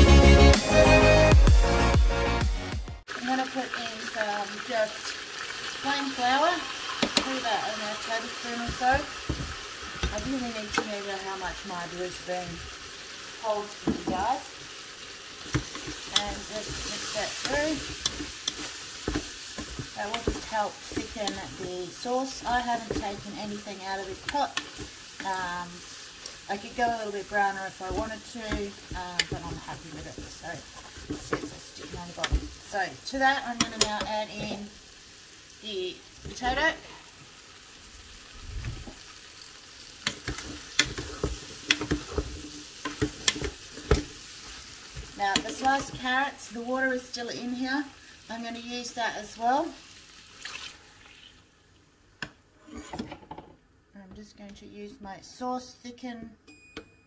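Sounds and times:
chicken sizzling in pot: 3.0s - 51.9s
spatula scraping pot: 15.4s - 34.7s, 40.0s - 46.2s, 52.6s - 53.2s.

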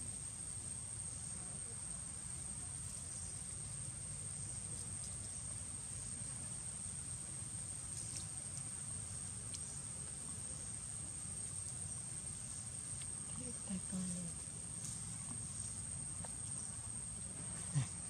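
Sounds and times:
insects trilling: 0.0s - 18.0s
faint ticks: 9.5s - 10.2s, 12.9s - 13.4s.

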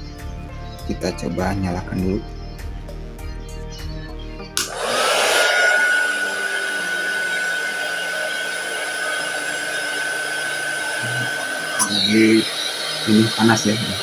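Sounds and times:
fan motor whine: 4.6s - 14.0s.

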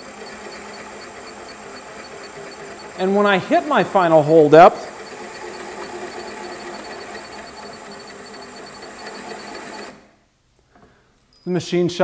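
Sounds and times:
rapid electronic beeping: 0.0s - 9.9s
drill press motor: 0.0s - 10.1s
drill bit cutting into wood: 4.0s - 10.0s.

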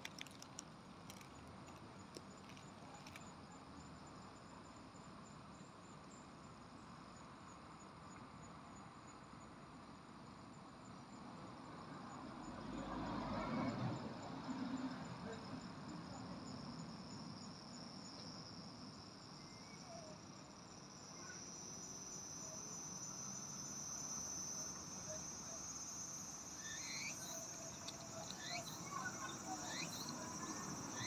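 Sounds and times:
short insect chirps: 18.0s - 31.0s
high-pitched insect trilling: 19.2s - 31.0s.

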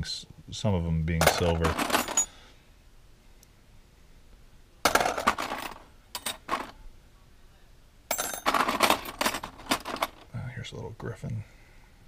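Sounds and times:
small metal pieces clinking: 1.2s - 2.4s, 8.1s - 10.2s.

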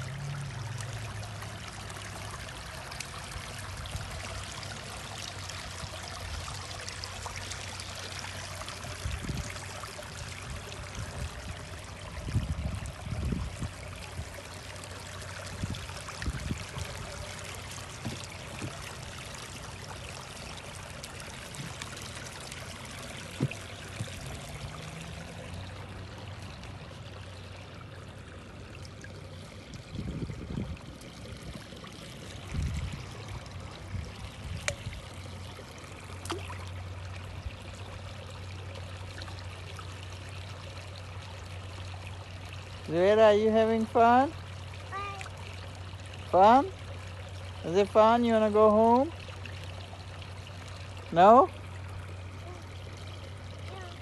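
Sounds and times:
stream trickling over rocks: 0.0s - 54.0s
thumps on microphone: 23.4s - 24.2s.

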